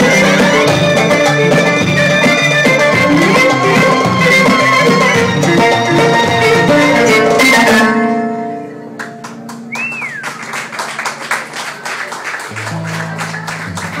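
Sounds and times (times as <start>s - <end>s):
live band playing: 0.0s - 14.0s
scattered hand claps: 9.0s - 14.0s
person whistling: 9.7s - 10.4s.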